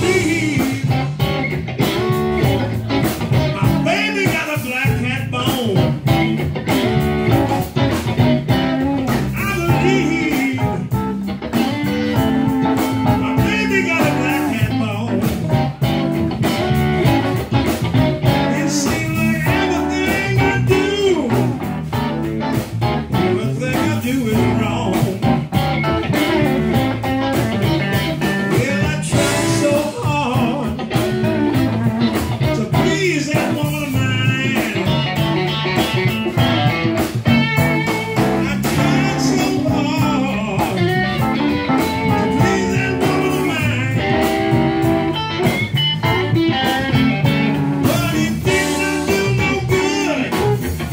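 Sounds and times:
blues band playing: 0.0 - 50.9
lead guitar bending notes: 0.0 - 50.9.

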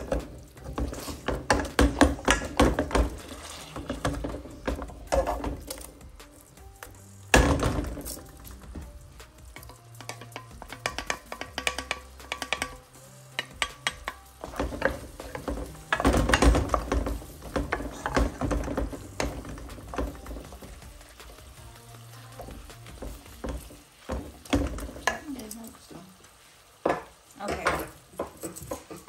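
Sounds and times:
potato masher scraping metal pan: 0.0 - 4.4
onions sizzling in oil: 0.0 - 29.0
wooden spoon stirring: 0.0 - 29.0.

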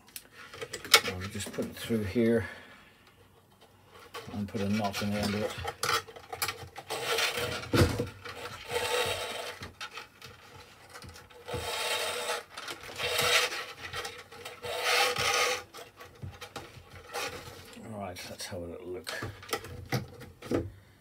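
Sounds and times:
cord rubbing against plastic: 3.2 - 17.9.

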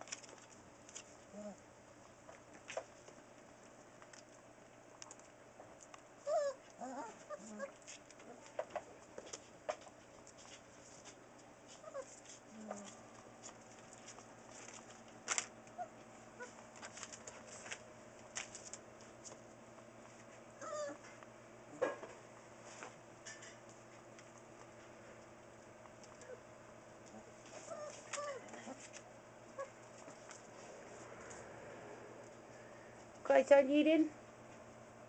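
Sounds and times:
small clicks and rustles: 0.0 - 1.3, 2.2 - 21.3, 22.6 - 26.4, 27.0 - 31.4
puppies whimpering: 6.2 - 8.4, 20.6 - 21.1, 27.6 - 28.5.

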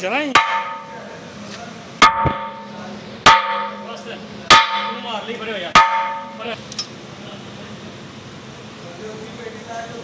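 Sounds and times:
hammer blows on metal wheel: 0.3 - 1.0, 2.0 - 5.1, 5.8 - 6.4
metallic ring: 0.4 - 1.1, 2.0 - 5.2, 5.8 - 6.9.

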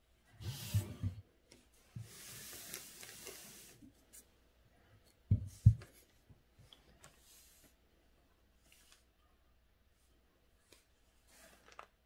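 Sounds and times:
paper rubbing hiss: 2.1 - 3.8
paper rustling: 10.7 - 12.0.

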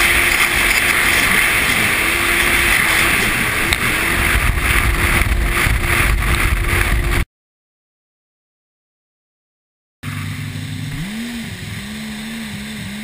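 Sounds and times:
jet ski engine running: 0.0 - 7.2, 10.0 - 13.0.

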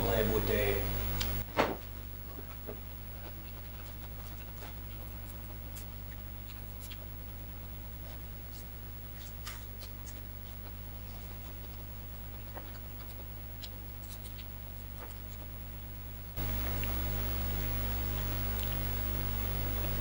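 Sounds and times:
low hum: 0.0 - 1.4, 16.4 - 20.0
chewing clicks and smacks: 2.9 - 20.0.

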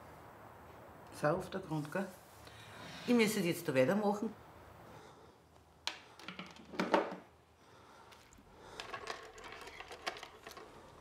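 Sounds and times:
knocks and rustles: 8.2 - 11.0.

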